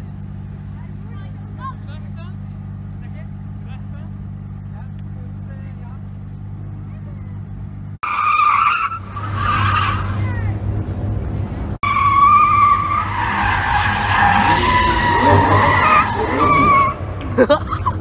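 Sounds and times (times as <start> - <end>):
car engine running: 0.0 - 8.0
car tyres screeching: 0.0 - 18.0.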